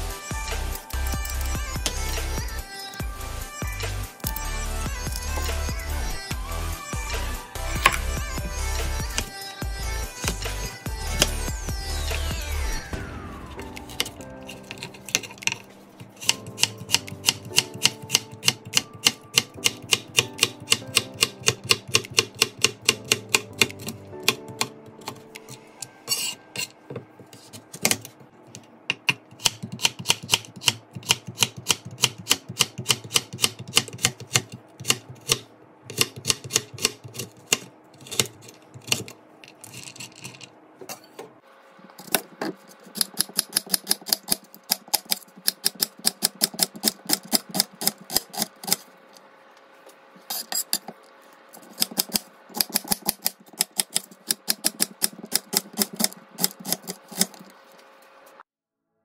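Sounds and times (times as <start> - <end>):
knife chopping on cutting board: 7.8 - 8.1, 16.1 - 25.3, 28.9 - 39.1, 42.0 - 48.8.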